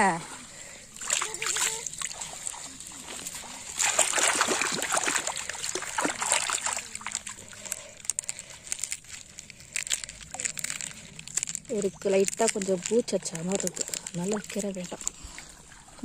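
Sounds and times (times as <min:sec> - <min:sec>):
water splashing and sloshing: 0:00.0 - 0:16.0.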